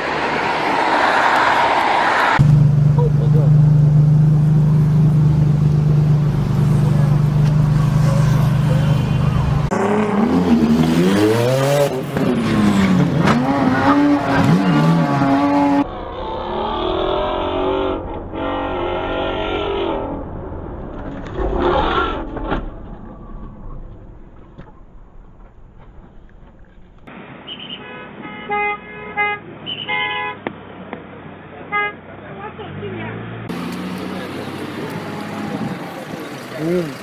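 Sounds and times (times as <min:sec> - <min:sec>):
car engines revving: 0:00.0 - 0:25.6, 0:30.5 - 0:37.0
car engine steady low drone: 0:02.4 - 0:09.7.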